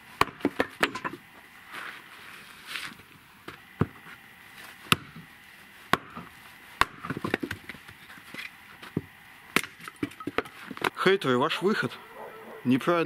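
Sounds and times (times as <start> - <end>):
axe chopping firewood: 0.2 - 1.3, 3.4 - 4.1, 4.8 - 5.3, 5.9 - 11.0.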